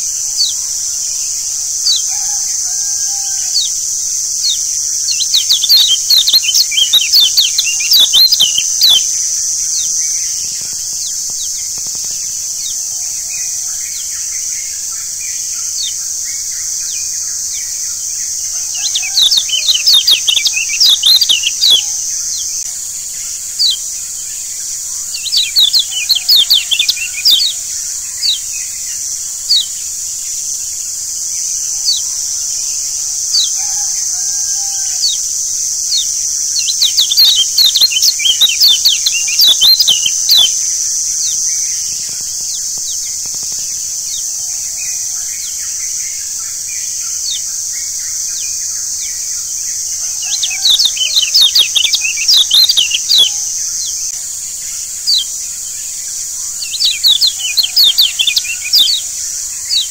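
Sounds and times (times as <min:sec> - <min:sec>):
birds chirping rapidly: 0:00.0 - 0:10.3, 0:17.1 - 0:22.7, 0:23.5 - 0:30.7, 0:32.7 - 0:41.4, 0:49.7 - 0:54.1, 0:56.6 - 0:59.9
steady high-pitched hiss: 0:00.0 - 0:59.9.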